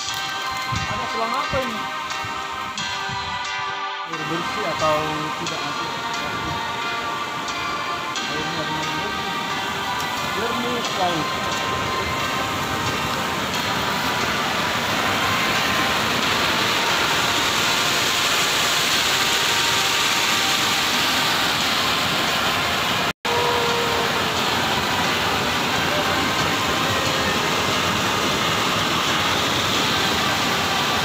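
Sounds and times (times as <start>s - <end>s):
stream rushing over rocks: 0.0s - 3.4s, 4.1s - 31.0s.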